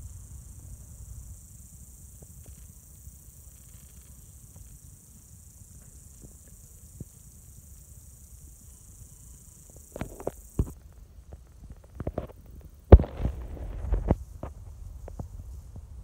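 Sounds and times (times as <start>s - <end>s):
rustling: 9.6s - 16.0s.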